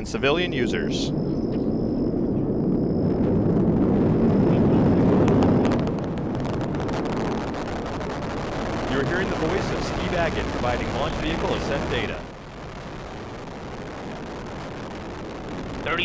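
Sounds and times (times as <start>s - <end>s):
rocket engine crackling rumble: 0.0s - 16.0s.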